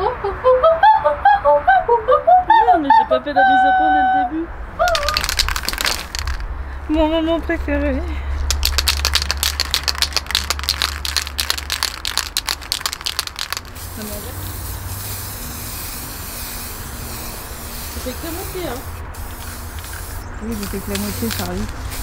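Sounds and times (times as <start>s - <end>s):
spray paint hissing: 4.8s - 6.4s, 8.4s - 22.0s
spray can ball rattling: 4.8s - 6.5s, 8.4s - 22.0s.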